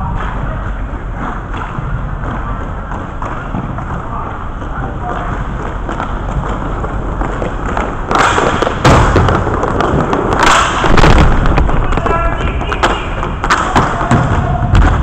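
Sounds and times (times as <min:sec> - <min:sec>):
hockey sticks and puck clattering: 0:00.0 - 0:15.0
skate wheels scraping floor: 0:00.0 - 0:15.0.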